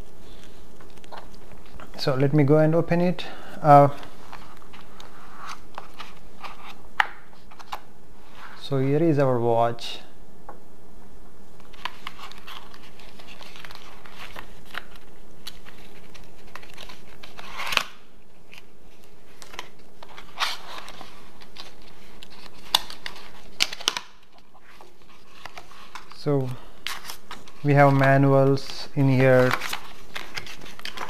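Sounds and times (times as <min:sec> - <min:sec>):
cardboard rustling and scraping: 0:18.5 - 0:26.2.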